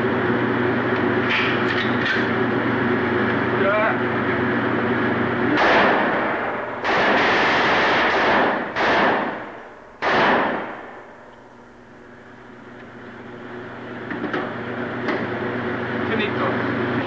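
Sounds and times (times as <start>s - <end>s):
pistol shots ringing: 5.6s - 11.0s.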